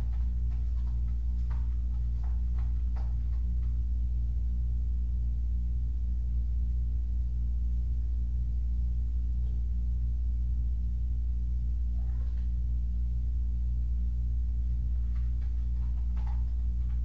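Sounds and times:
kitten paws tapping and scratching: 0:00.0 - 0:04.5, 0:14.6 - 0:17.0
steady low hum: 0:00.0 - 0:17.0.

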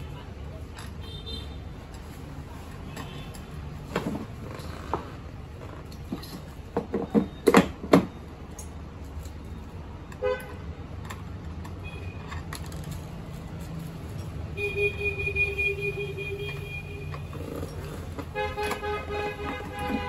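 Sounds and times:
plastic wheels knocking and clattering: 0:02.9 - 0:08.1, 0:16.4 - 0:20.0.

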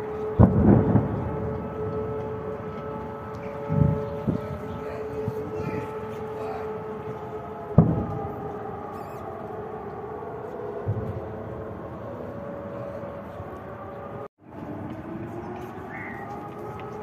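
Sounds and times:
sharp bang: 0:07.8 - 0:08.2.

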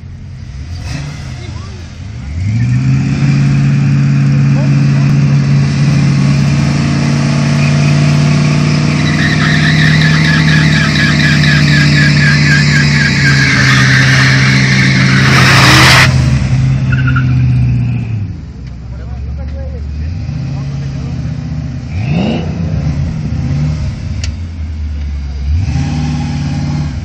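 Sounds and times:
car engine at high revs: 0:00.0 - 0:18.8, 0:19.4 - 0:27.0
tyres squealing: 0:07.4 - 0:16.1.

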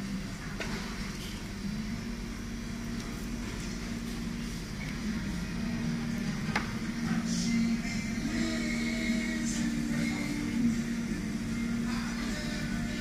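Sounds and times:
restaurant room hum: 0:00.0 - 0:13.0.

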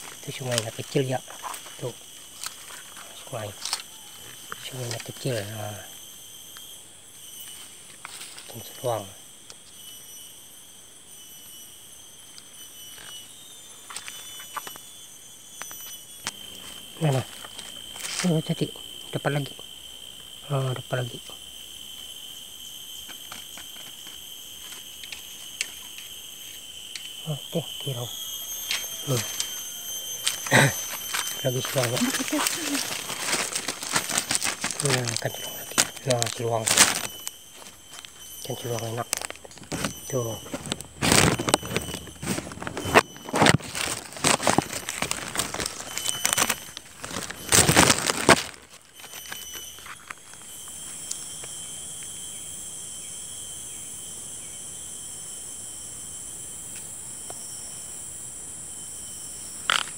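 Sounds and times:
high-pitched insect drone: 0:00.0 - 0:59.9
plastic bag crinkling: 0:30.2 - 0:50.5.

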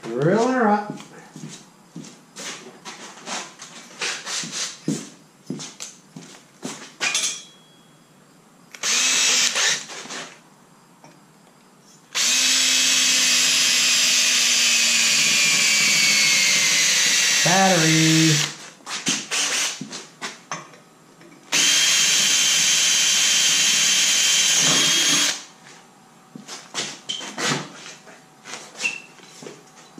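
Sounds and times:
knocks and clatter of tools: 0:06.8 - 0:07.6, 0:20.2 - 0:21.4
cordless drill cutting metal: 0:08.8 - 0:10.0, 0:12.1 - 0:18.6, 0:19.3 - 0:19.8, 0:21.5 - 0:25.4.

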